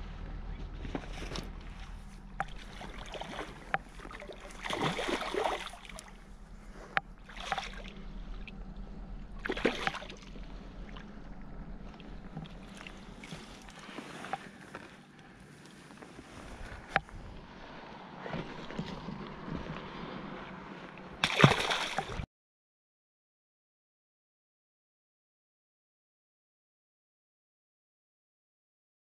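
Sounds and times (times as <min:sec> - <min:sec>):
fish splashing and thrashing: 0:00.6 - 0:15.7, 0:16.4 - 0:22.2.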